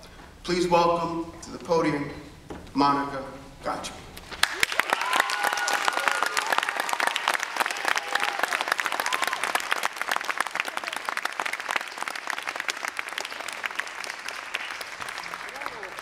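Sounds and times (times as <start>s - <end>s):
audience applauding: 4.3s - 16.0s.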